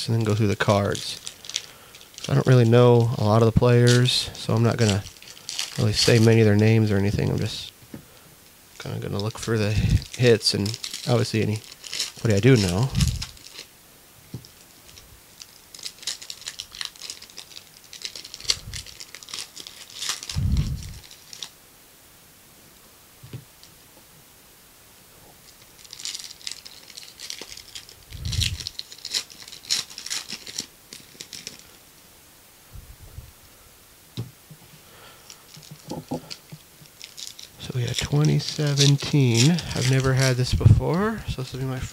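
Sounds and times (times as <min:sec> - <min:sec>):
foil wrappers tearing and crinkling: 0:00.0 - 0:07.6, 0:08.8 - 0:13.7, 0:14.5 - 0:21.6, 0:25.4 - 0:31.8, 0:35.0 - 0:41.9.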